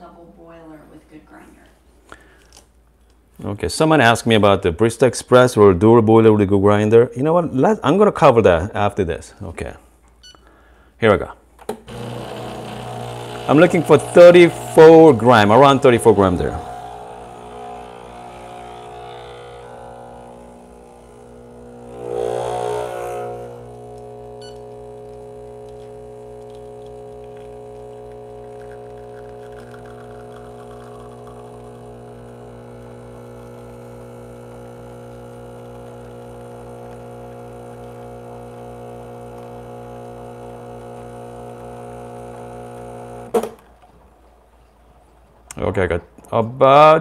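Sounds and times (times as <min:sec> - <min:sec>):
espresso machine pump humming: 0:11.9 - 0:43.5.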